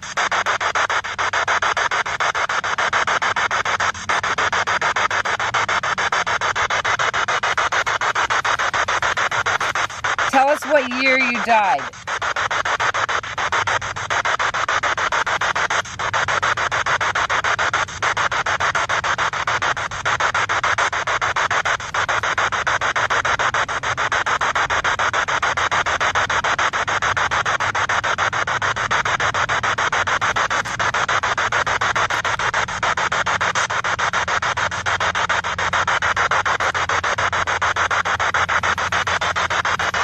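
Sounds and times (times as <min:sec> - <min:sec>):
chopping radio static: 0:00.0 - 0:40.0.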